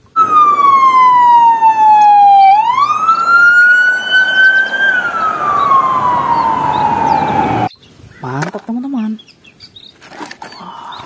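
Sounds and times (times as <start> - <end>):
police siren wailing: 0.0 - 7.7.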